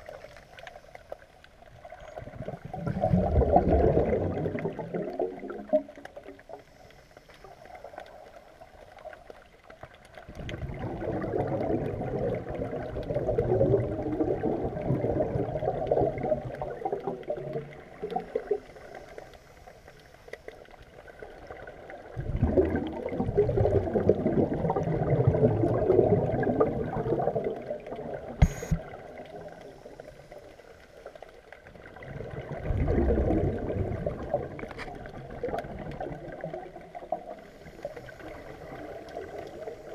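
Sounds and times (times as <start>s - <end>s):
underwater exhaust bubbles: 0.0s - 39.9s
sharp click: 28.4s - 28.8s.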